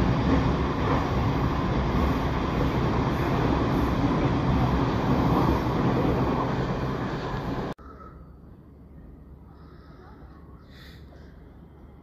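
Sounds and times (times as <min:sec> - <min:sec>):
train wheels rumbling on rails: 0:00.0 - 0:07.8.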